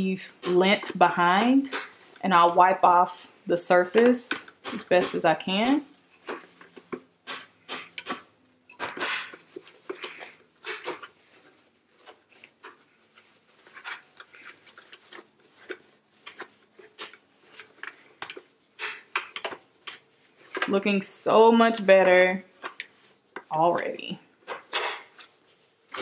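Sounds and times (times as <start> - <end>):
paper towel rubbing on plastic: 9.4 - 19.1.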